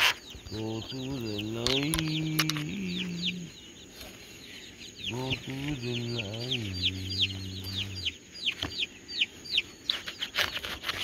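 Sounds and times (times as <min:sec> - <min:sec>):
chicks peeping: 0:00.0 - 0:11.0
man's low voice: 0:00.5 - 0:03.5, 0:05.1 - 0:08.1
rustling: 0:09.7 - 0:11.0.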